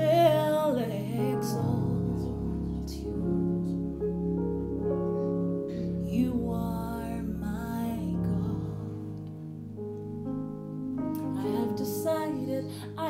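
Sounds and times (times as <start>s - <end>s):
woman singing: 0.0s - 3.8s, 6.0s - 9.2s, 11.2s - 13.0s
sustained instrumental chords: 0.0s - 13.0s
bass line: 1.0s - 12.5s.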